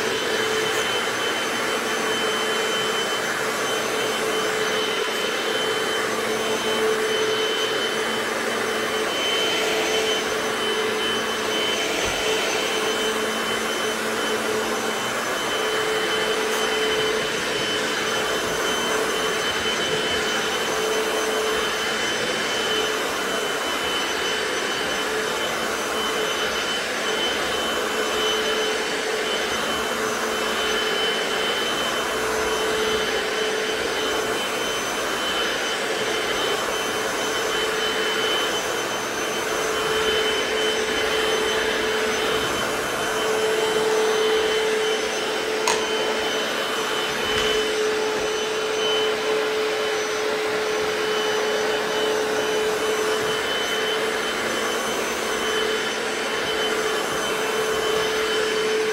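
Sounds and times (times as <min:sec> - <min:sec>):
floor cleaner whining and humming: 0:00.0 - 0:58.9.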